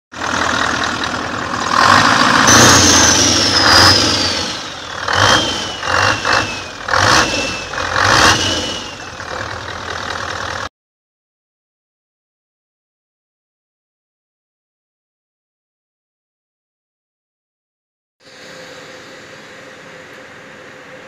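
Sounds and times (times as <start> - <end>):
engine starting and revving: 0.2 - 10.7
high whine sliding down: 0.8 - 9.2.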